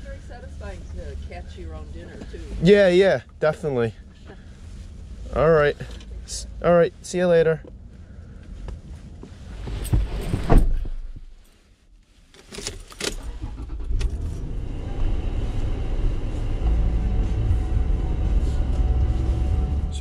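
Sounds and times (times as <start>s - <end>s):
car engine starting and idling: 0.0s - 11.3s, 12.4s - 20.0s
loud thump: 9.9s - 11.3s.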